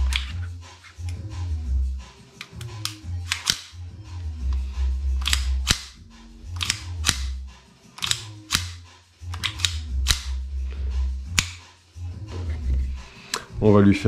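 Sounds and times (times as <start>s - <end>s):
background music: 0.0s - 14.0s
pistol slide metallic clicks: 2.4s - 3.8s, 5.2s - 7.4s, 8.0s - 10.4s.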